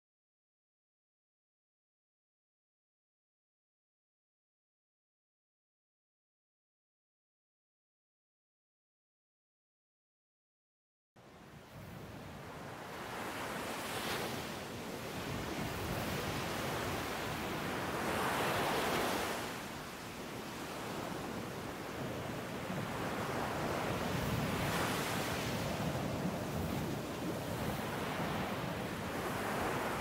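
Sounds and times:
wind: 0:11.2 - 0:30.0
waves breaking: 0:11.8 - 0:30.0.

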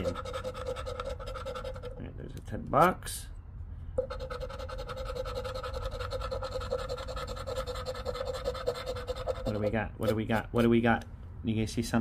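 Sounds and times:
metal scratcher scraping lottery ticket: 0:00.0 - 0:02.0, 0:04.0 - 0:10.7.

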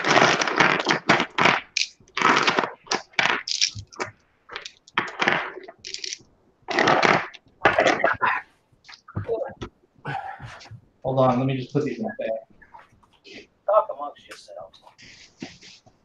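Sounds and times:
metal pieces clinking and clattering: 0:03.4 - 0:04.0, 0:05.8 - 0:06.2.

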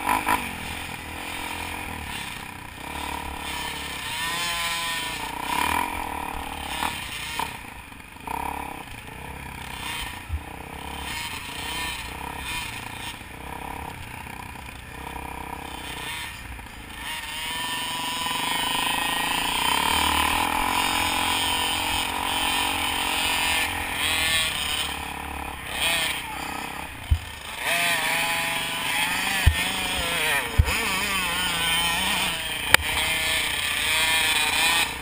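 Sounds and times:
dirt bike engine revving: 0:00.0 - 0:35.0
sharp knocks: 0:29.3 - 0:29.8.

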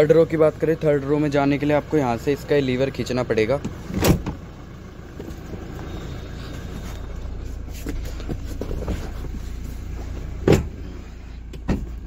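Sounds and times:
low cabin hum: 0:00.0 - 0:12.0
rustling: 0:05.8 - 0:10.4.

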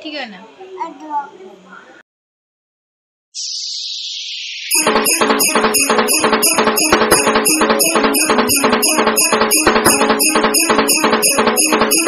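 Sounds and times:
background music with fast beat: 0:04.7 - 0:12.0.

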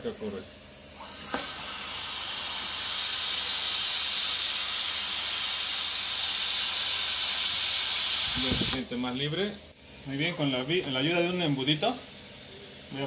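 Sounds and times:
compressed air hissing: 0:01.0 - 0:08.9.

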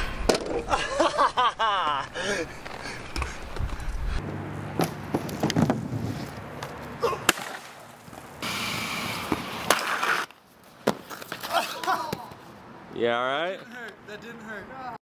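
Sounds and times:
skate wheels rolling on concrete: 0:00.0 - 0:12.6
skate impact clacks: 0:09.2 - 0:12.4.

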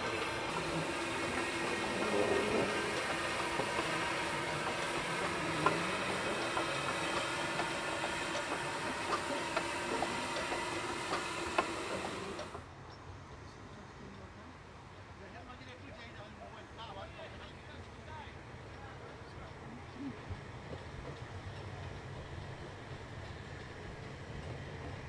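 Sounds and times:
steam hissing: 0:00.0 - 0:12.7.

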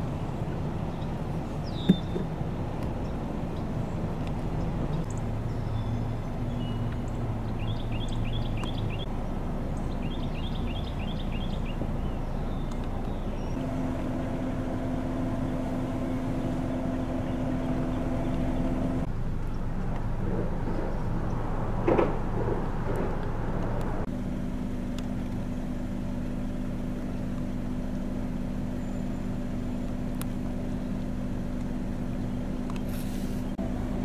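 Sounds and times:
distant road traffic: 0:00.0 - 0:34.0
bird chirping: 0:00.3 - 0:02.3, 0:03.0 - 0:13.6, 0:28.5 - 0:30.0
steady hum: 0:13.6 - 0:34.0.

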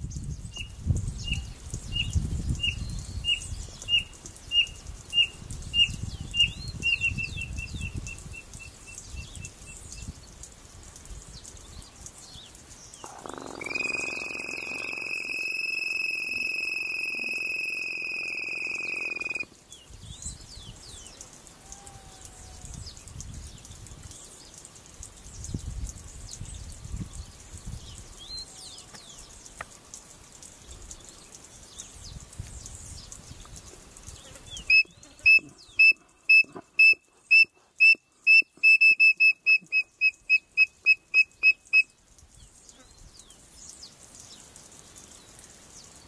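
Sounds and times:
long steady bird whistle: 0:00.0 - 0:29.6, 0:30.6 - 0:42.4
faint bird chirps: 0:11.3 - 0:24.5.

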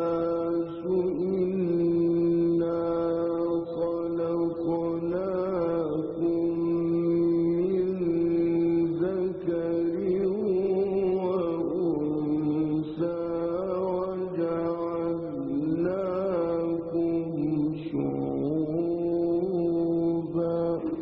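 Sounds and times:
man chanting melodic recitation: 0:00.0 - 0:21.0.

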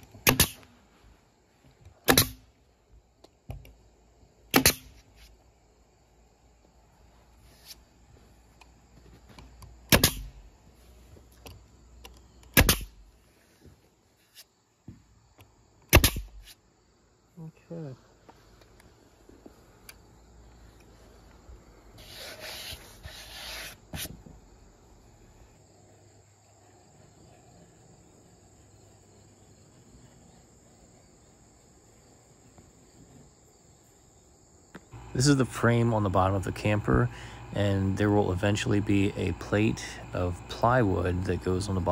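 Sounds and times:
crickets chirring: 0:00.0 - 0:41.9
nail gun firing: 0:00.2 - 0:00.7, 0:02.0 - 0:02.4, 0:04.5 - 0:05.0, 0:09.9 - 0:10.4, 0:12.5 - 0:13.0, 0:15.9 - 0:16.4.

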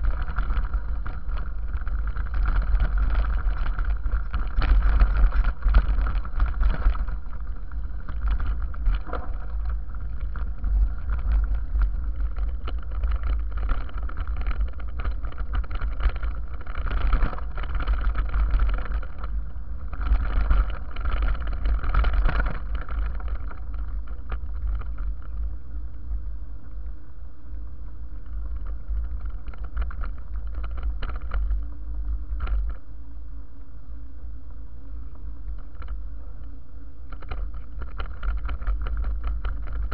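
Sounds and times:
mountain bike rattling and knocking: 0:00.0 - 0:25.4, 0:28.3 - 0:31.8, 0:37.1 - 0:39.9
wind rumble on microphone: 0:00.0 - 0:39.9.

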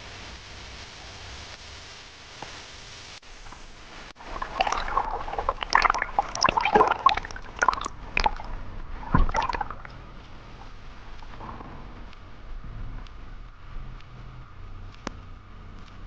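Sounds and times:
steady underwater hiss: 0:00.0 - 0:16.0
underwater bubbly gurgles: 0:03.5 - 0:11.9
sharp underwater clicks: 0:03.5 - 0:16.0.

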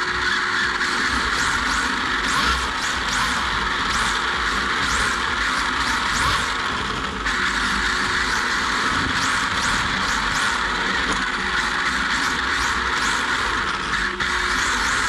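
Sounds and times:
rc car motor whirring: 0:00.0 - 0:15.0.

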